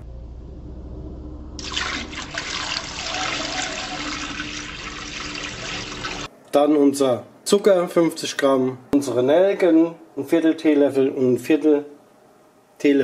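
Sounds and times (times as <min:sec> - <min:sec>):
wine pouring into steel bowl: 0:01.6 - 0:06.3.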